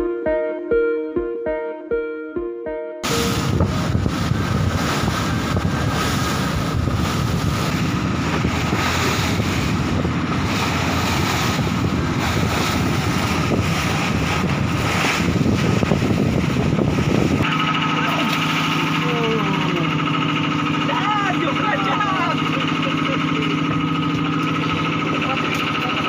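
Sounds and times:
wind buffeting microphone: 3.0 - 17.5
boat engine running: 3.0 - 26.0
water rushing along hull: 3.0 - 26.0.

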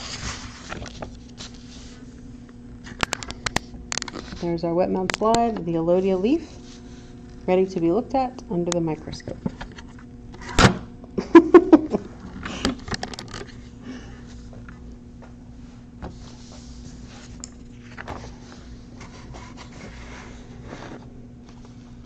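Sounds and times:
paper rustling: 0.0 - 2.0, 16.6 - 21.0
steady low hum: 0.0 - 22.0.

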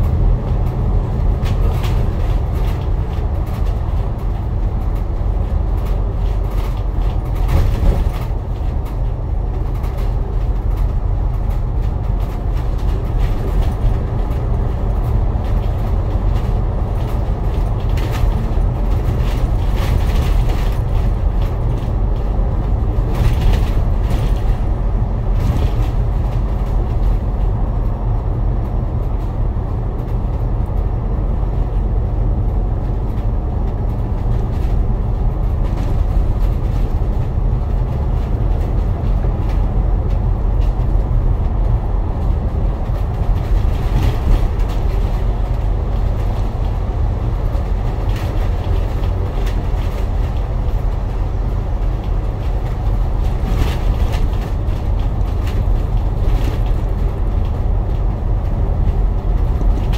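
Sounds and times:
bus engine and road noise: 0.0 - 59.9.

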